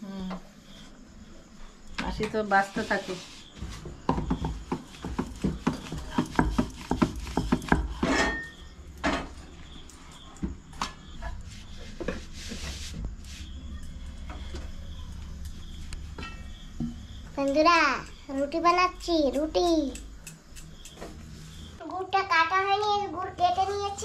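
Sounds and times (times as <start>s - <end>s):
rolling pin knocking on board: 4.1s - 8.0s
dough rustling: 4.9s - 8.0s.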